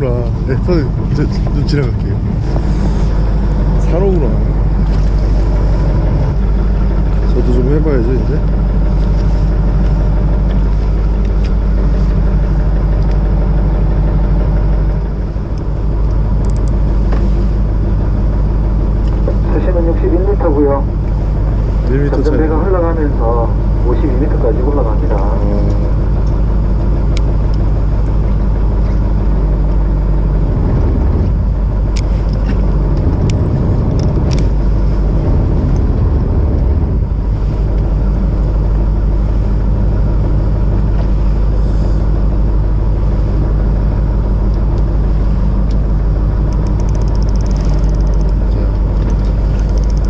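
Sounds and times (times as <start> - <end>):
boat engine humming: 0.0 - 50.0
wind and water rushing: 30.2 - 39.2.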